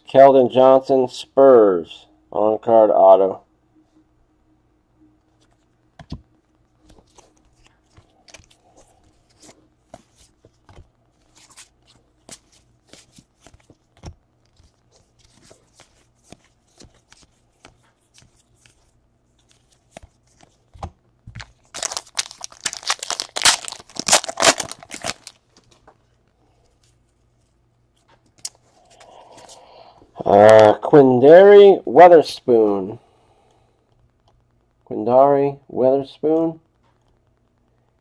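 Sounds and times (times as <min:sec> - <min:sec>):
foil wrapper tearing: 0:21.4 - 0:25.4.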